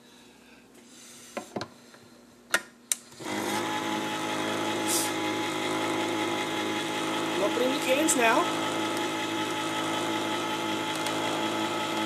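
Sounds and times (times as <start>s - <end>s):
can opener motor whirring: 3.2s - 12.0s.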